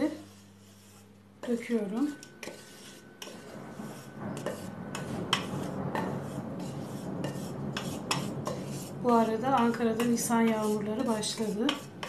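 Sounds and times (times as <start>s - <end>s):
spoon scraping pot: 0.0s - 12.0s.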